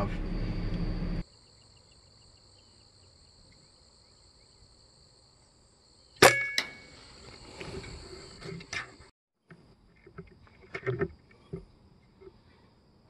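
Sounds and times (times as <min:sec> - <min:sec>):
air rifle shot with metallic ring: 0:06.2 - 0:06.9.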